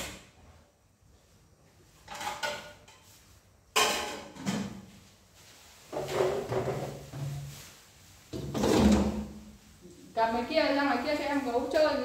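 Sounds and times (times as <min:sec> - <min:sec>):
kitchenware knocking and scraping: 0:02.0 - 0:03.1, 0:03.7 - 0:04.9, 0:05.9 - 0:07.5, 0:08.3 - 0:09.4
kitchenware clattering: 0:02.0 - 0:04.9, 0:05.9 - 0:07.5.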